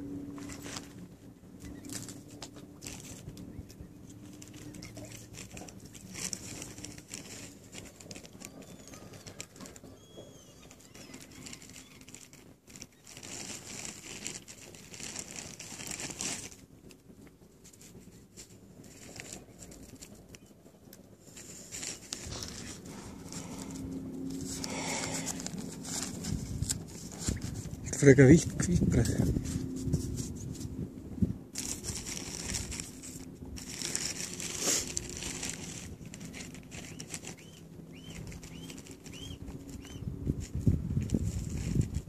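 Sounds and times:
plastic bag crinkling: 1.6s - 30.3s, 31.5s - 42.0s
faint bird chirps: 8.3s - 12.3s, 36.8s - 40.1s
bread being torn: 31.6s - 40.0s.

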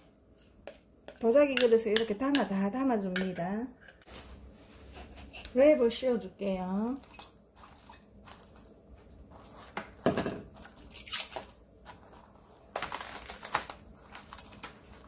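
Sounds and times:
plastic cling wrap crinkling: 6.8s - 15.0s.

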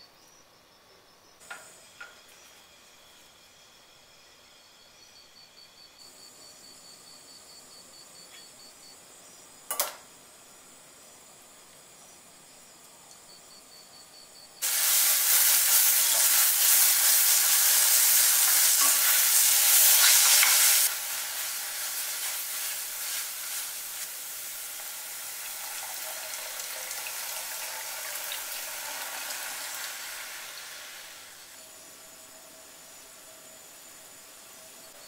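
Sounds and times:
seaweed sizzling in a pot: 14.6s - 31.7s.

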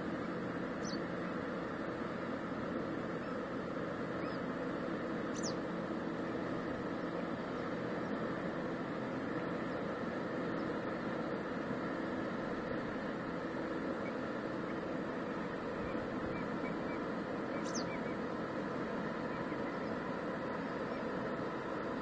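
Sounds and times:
distant ship engine drone: 0.0s - 22.0s
faint bird chirps: 0.8s - 1.1s, 4.1s - 4.5s, 5.3s - 5.6s, 14.0s - 18.3s, 19.2s - 21.1s
high falling bird chirp: 5.3s - 5.6s, 15.8s - 18.2s.

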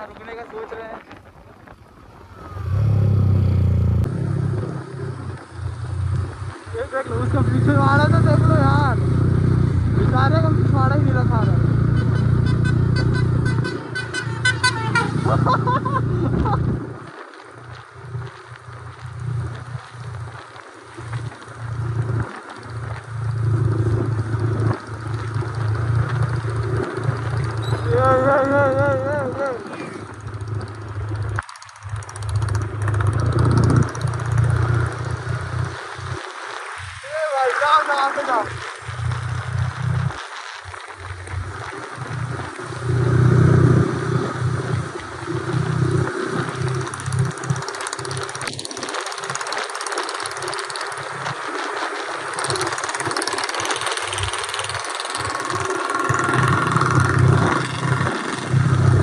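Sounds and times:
wind rumbling on microphone: 0.0s - 59.0s
motorcycle engine: 1.8s - 17.1s, 17.7s - 36.3s, 37.2s - 59.0s.

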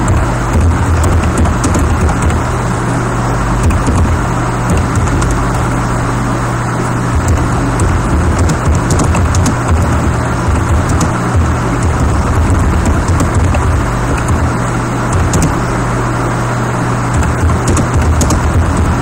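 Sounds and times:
keyboard keys clicking: 0.0s - 2.5s, 3.6s - 5.7s, 7.2s - 15.8s, 17.1s - 19.0s
loud steady noise with low hum: 0.0s - 19.0s.

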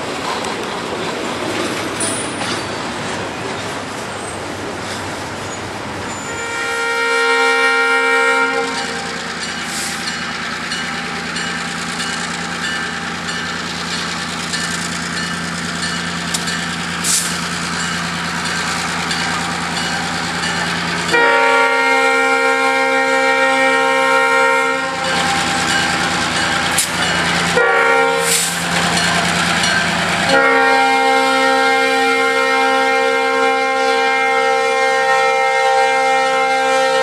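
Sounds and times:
locomotive air horn blast: 6.2s - 10.0s, 21.0s - 25.3s, 27.5s - 28.6s, 30.3s - 37.0s
locomotive engine running: 7.5s - 32.6s.

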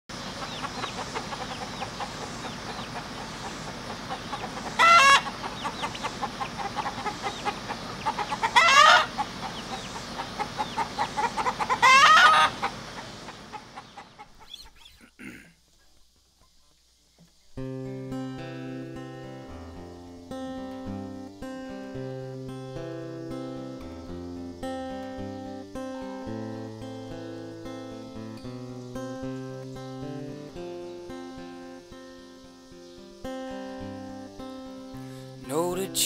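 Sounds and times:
loud chicken calls: 0.1s - 15.4s
chickens clucking: 0.1s - 17.5s.

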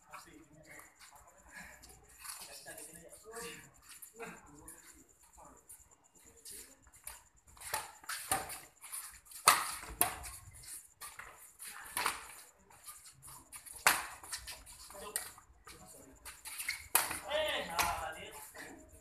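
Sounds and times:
rackets hitting shuttlecock: 9.3s - 10.4s, 11.2s - 12.4s, 13.6s - 14.4s, 16.5s - 18.1s.

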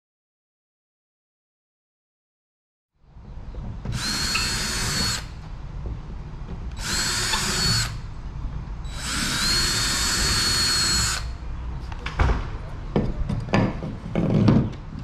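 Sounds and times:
cordless drill whine: 3.9s - 5.4s, 6.8s - 8.0s, 8.9s - 11.4s.

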